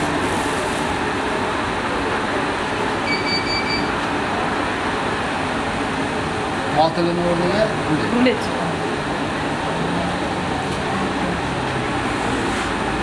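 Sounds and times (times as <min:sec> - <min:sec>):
short high tone: 0:03.0 - 0:04.0.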